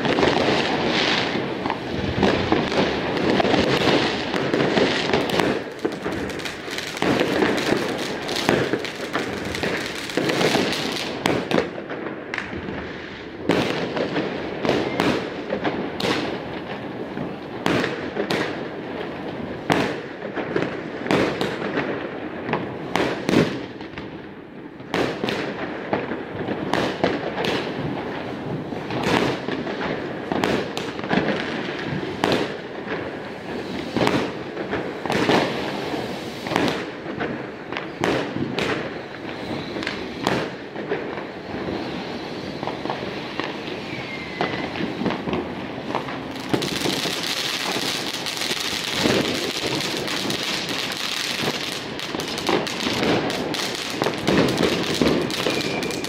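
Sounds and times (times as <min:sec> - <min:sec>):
fireworks crackling and banging: 0:00.0 - 0:56.0.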